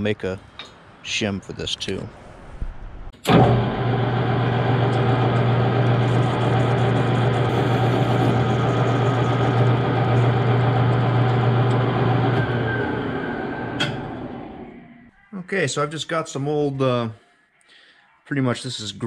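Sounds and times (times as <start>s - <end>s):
metal lathe humming: 3.3s - 15.0s.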